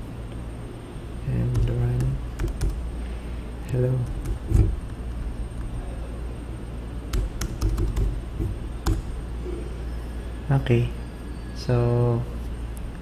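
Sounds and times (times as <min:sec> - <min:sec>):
computer keyboard keystrokes: 0:01.5 - 0:02.8, 0:04.0 - 0:04.8, 0:07.1 - 0:09.1.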